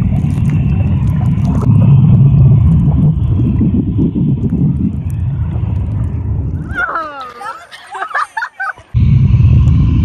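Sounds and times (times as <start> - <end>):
underwater churning water and bubbles: 0.0 - 7.1.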